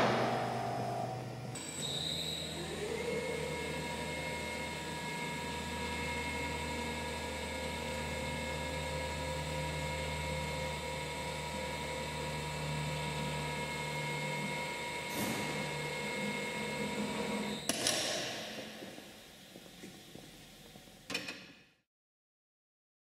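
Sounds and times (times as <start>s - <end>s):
deeper hum: 0.0s - 1.8s, 2.4s - 17.6s
band saw machine hum: 0.0s - 21.0s.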